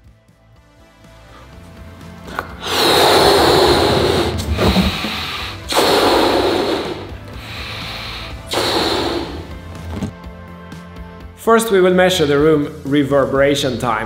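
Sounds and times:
balloon being blown up: 0:02.3 - 0:10.2.

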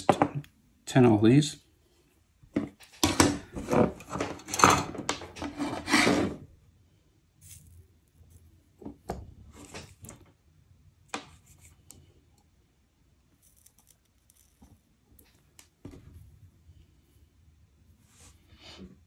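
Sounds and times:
light metal scrapes: 0:05.4 - 0:06.5.

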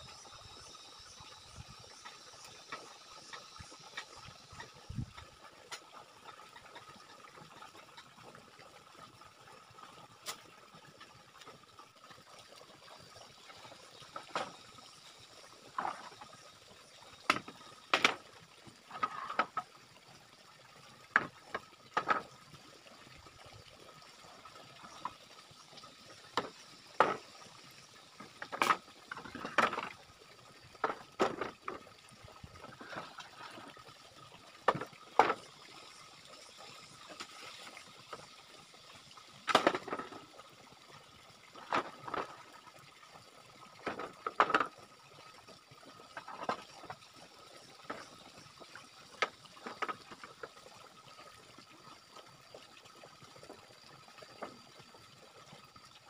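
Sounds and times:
bamboo poles knocking together: 0:14.1 - 0:14.6, 0:17.2 - 0:18.3, 0:21.1 - 0:22.3, 0:26.3 - 0:27.2, 0:28.2 - 0:30.0, 0:30.8 - 0:31.8, 0:34.7 - 0:35.4, 0:39.5 - 0:40.2, 0:43.8 - 0:44.8.

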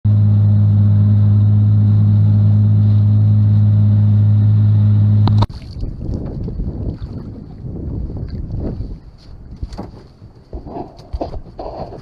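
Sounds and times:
low mechanical hum: 0:00.1 - 0:07.8.

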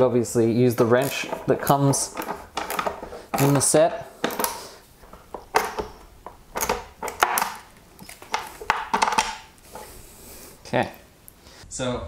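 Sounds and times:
ratchet clicking: 0:00.8 - 0:04.6.

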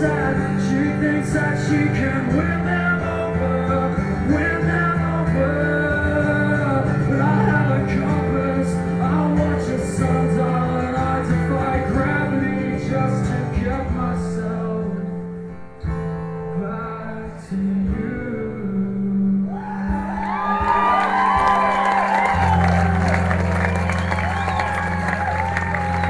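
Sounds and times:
man singing: 0:00.0 - 0:15.4, 0:16.3 - 0:21.8
audience whooping and cheering: 0:19.5 - 0:26.0.

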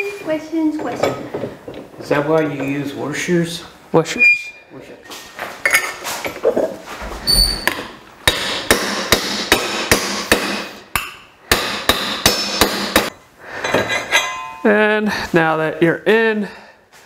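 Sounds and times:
hammer striking metal tube: 0:07.6 - 0:13.1.

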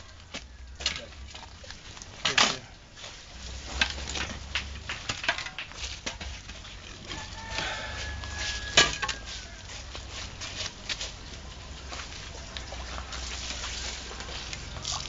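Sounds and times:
shovels scraping sand: 0:02.0 - 0:15.0.

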